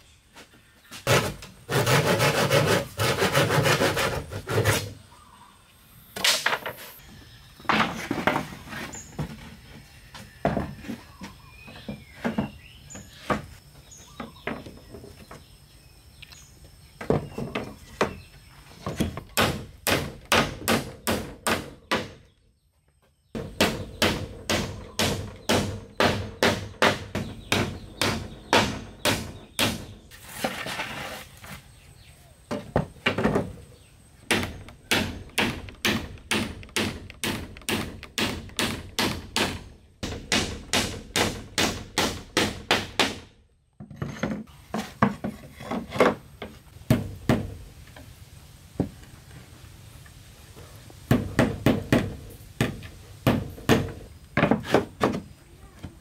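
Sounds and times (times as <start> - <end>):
hatchet striking wood: 19.4 - 22.2, 23.4 - 29.9, 34.3 - 43.3.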